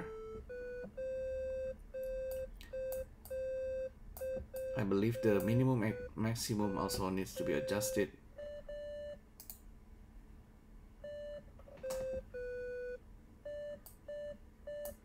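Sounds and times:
faint clicks: 9.4s - 9.6s.

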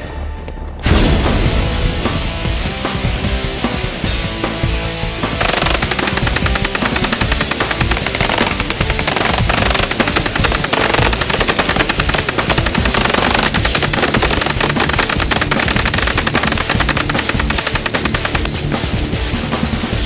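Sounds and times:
music: 0.0s - 20.0s
submachine gun firing rapidly: 5.4s - 18.7s.

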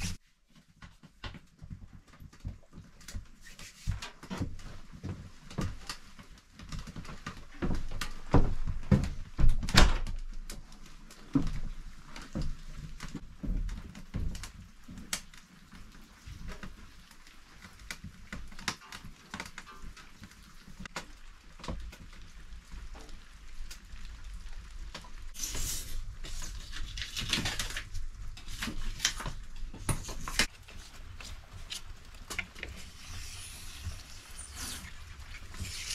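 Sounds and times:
knocks and thuds around wood stove: 6.6s - 10.6s, 11.3s - 15.2s.

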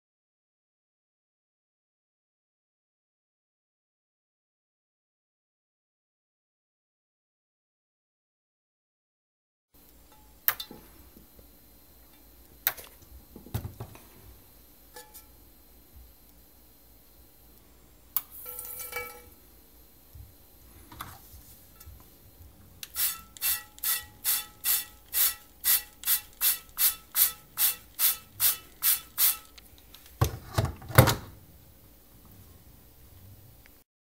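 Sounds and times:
spray bottle hissing: 22.8s - 29.6s.

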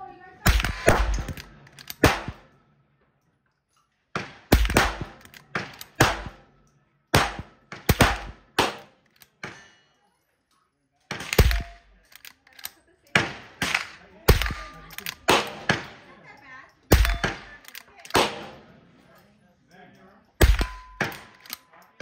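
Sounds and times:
rifle shots: 0.4s - 2.5s, 4.1s - 6.4s, 7.1s - 9.6s, 11.1s - 12.0s, 13.1s - 16.1s, 16.9s - 18.7s, 20.4s - 21.6s.

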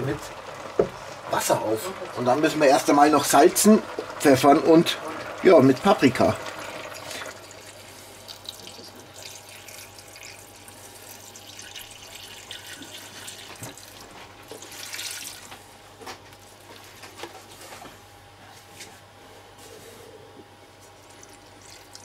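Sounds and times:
water pouring into a pot: 0.0s - 15.6s, 21.0s - 22.0s.

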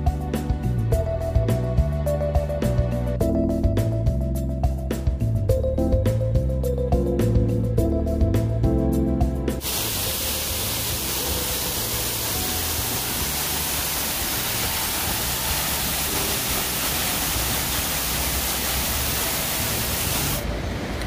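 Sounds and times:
river water rushing: 9.6s - 20.5s.

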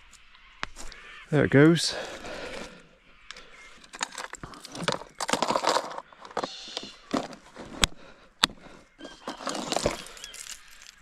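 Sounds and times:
fishing tackle clicking and rattling: 3.3s - 6.5s
rustling: 9.0s - 11.0s.

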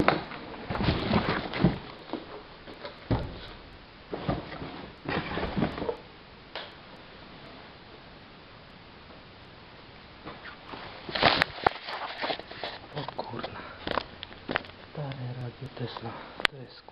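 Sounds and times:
knocks and rustles: 0.0s - 6.0s.

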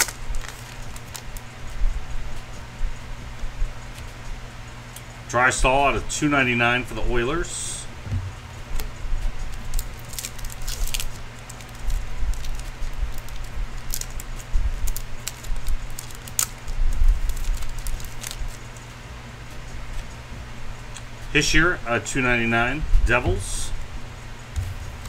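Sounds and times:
plastic wrapper crinkling: 0.0s - 1.4s, 9.5s - 18.8s
low hum: 0.0s - 25.0s.

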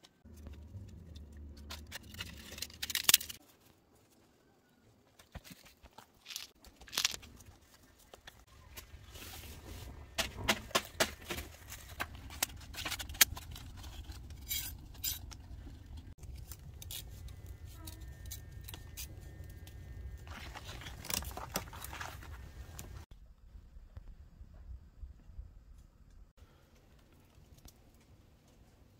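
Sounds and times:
campfire burning with low rumble: 11.6s - 28.9s.

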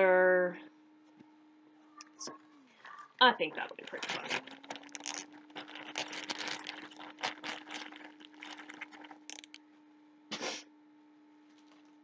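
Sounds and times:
faint steady hum: 0.0s - 12.0s
plastic bag crinkling: 2.2s - 9.6s, 11.5s - 12.0s.

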